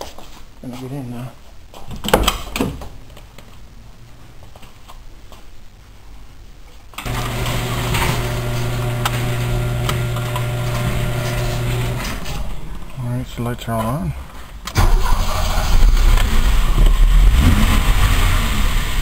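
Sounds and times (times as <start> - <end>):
quiet rustling: 0.0 - 7.0
electrical hum: 2.3 - 14.7.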